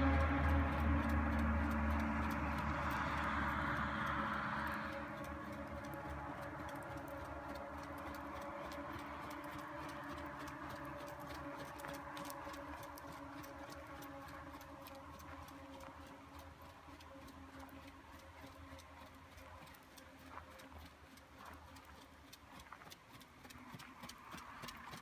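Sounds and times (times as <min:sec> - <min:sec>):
rushing noise: 0:00.0 - 0:15.1
hooves on gravel: 0:00.0 - 0:25.0.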